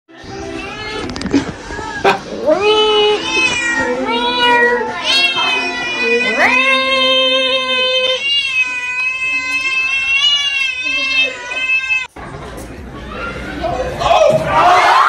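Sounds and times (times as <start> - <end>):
cat yowling: 2.4 - 12.1.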